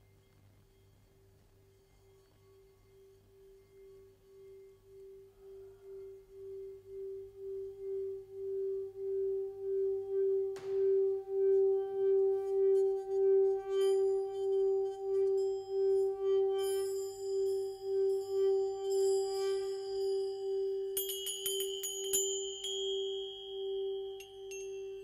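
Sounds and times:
singing bowl humming tone: 0:00.0 - 0:25.0
brief knock: 0:10.6 - 0:11.0.

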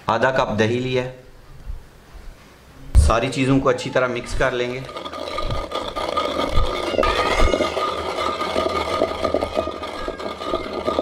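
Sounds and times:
wooden pestle scraping clay bowl: 0:03.0 - 0:11.0
pestle thumps: 0:04.3 - 0:11.0.

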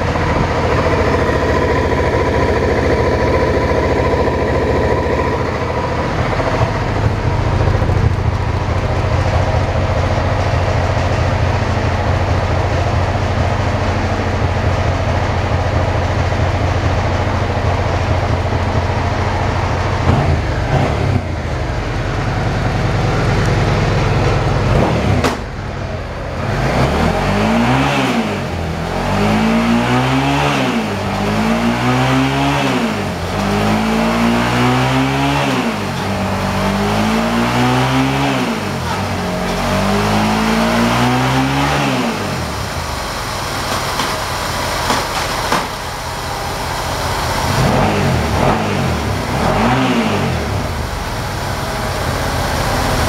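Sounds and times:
motorcycle engine idling and revving: 0:00.0 - 0:53.0.

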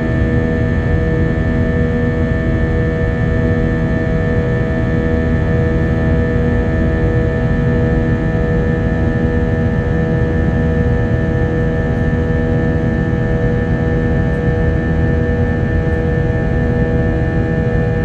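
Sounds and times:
airliner cabin engine drone: 0:00.0 - 0:18.0.

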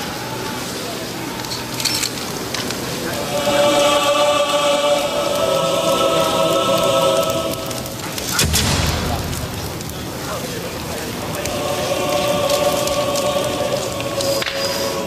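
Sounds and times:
steady crackling haze: 0:00.0 - 0:15.0
choir holding a sustained chord: 0:02.9 - 0:15.0
loud burst with low rumble: 0:07.3 - 0:14.2.

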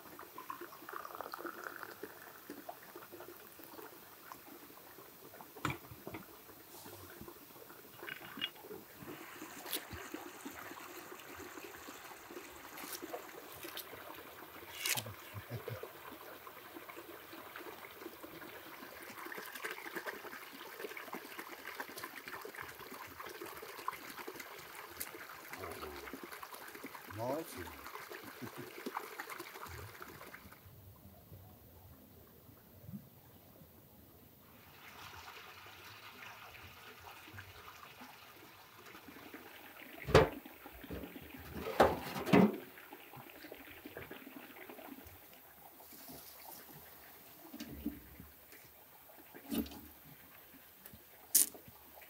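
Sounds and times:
tea pouring into a glass: 0:00.3 - 0:04.6.

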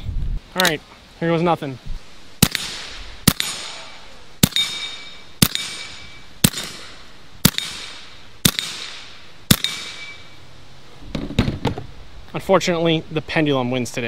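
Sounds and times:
air pistol shots: 0:02.4 - 0:10.2
steel plate ringing: 0:04.4 - 0:06.8, 0:09.5 - 0:10.4.

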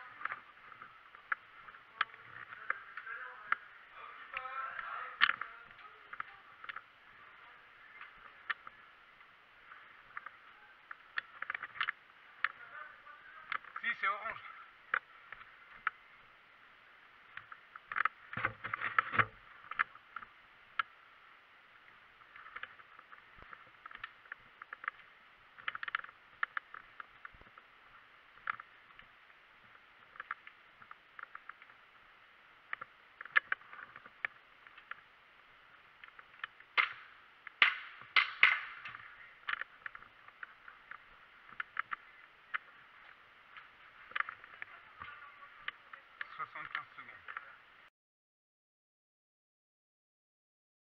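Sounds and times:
sharp snaps: 0:36.1 - 0:42.6.

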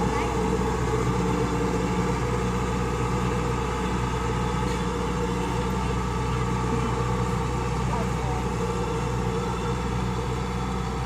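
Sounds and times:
harvester engine running: 0:00.0 - 0:11.0.

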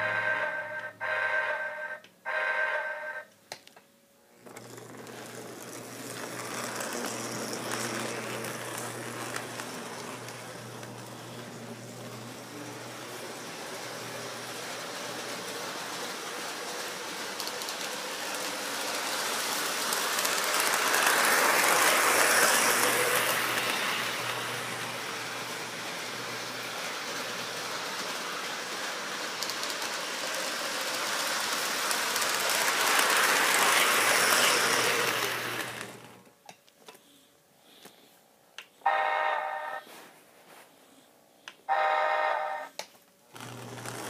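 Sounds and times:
model train rumbling on track: 0:04.4 - 0:36.2.

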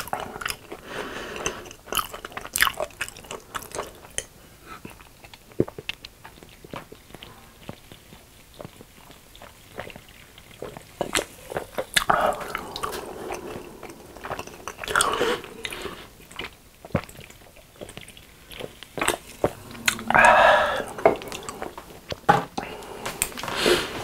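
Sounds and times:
chewing: 0:00.0 - 0:23.5
wet mouth clicks: 0:19.0 - 0:20.2
gulping and swallowing: 0:19.0 - 0:21.8.

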